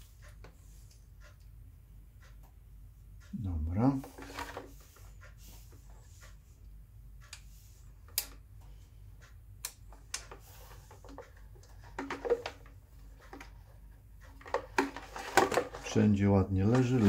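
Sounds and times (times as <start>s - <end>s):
low steady hum: 0.0s - 17.0s
plastic parts clicking and tapping: 4.0s - 4.8s, 9.2s - 17.0s.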